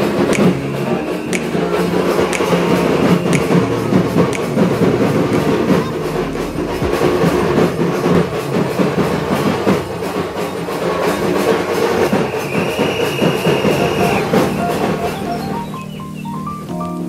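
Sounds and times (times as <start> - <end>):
crowd hubbub: 0.0 - 17.0
music: 0.0 - 17.0.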